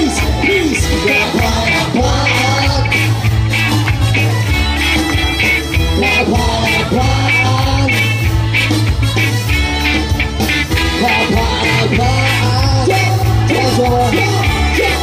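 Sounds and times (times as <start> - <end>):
lead singer: 0.0 - 8.9, 10.1 - 15.0
bass: 0.0 - 15.0
drums: 0.0 - 15.0
electric guitars: 0.0 - 15.0
keyboard: 0.0 - 15.0.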